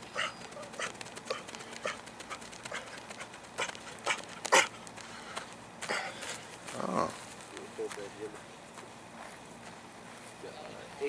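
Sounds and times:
hard breathing: 0.0 - 7.3
quick footsteps on grass: 0.0 - 11.0.

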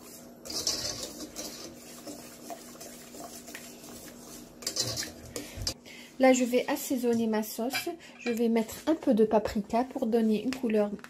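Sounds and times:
wire whisk scraping a pot: 0.0 - 5.8.

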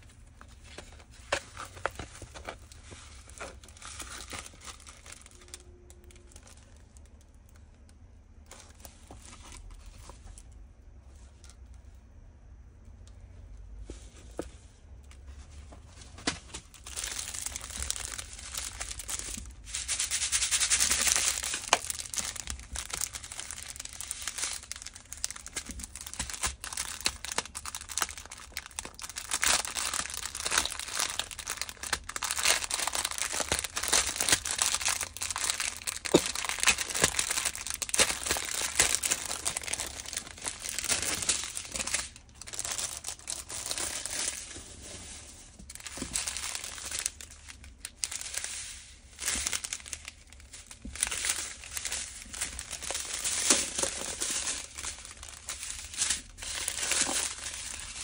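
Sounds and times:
plastic packaging crinkling: 0.0 - 11.8, 14.0 - 58.0.

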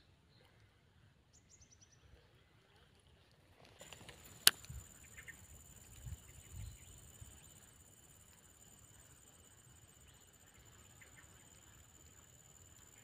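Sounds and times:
sharp click: 3.8 - 4.8.

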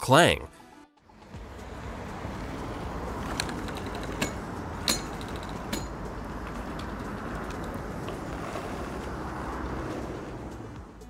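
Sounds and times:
wheel rolling noise: 1.4 - 11.0
sharp metallic clangs: 4.1 - 6.1.

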